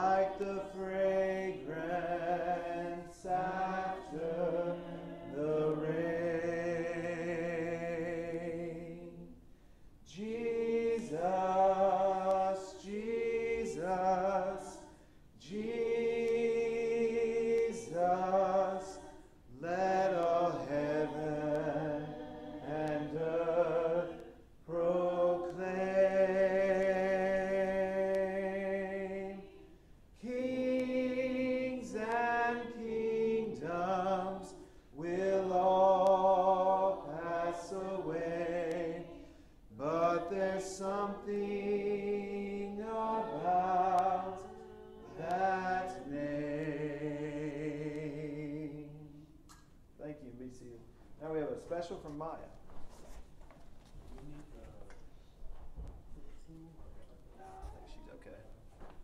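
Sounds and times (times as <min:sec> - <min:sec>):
man singing hymn solo: 0:10.1 - 0:14.8, 0:30.2 - 0:39.0, 0:39.8 - 0:44.4.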